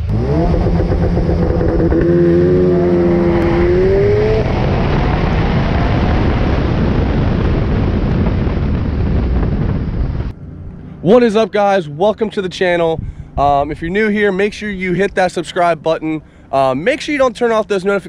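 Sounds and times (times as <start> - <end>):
car engine accelerating: 0.0 - 11.3
wind and tyre noise: 0.0 - 18.0.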